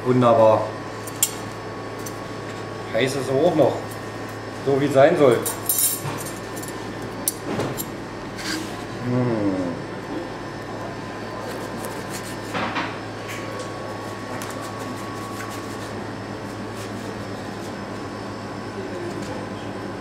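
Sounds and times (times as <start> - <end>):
room hum: 0.0 - 20.0
knife and fork cutting pizza: 11.3 - 12.7, 14.1 - 16.0.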